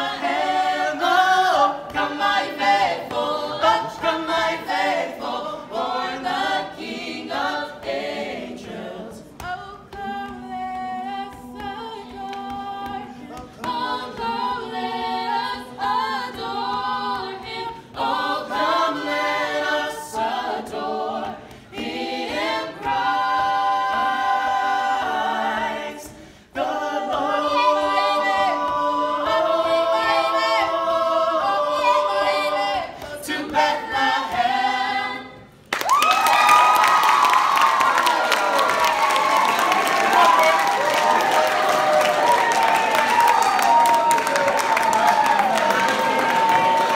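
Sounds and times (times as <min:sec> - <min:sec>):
group singing a cappella carol: 0:00.0 - 0:35.7.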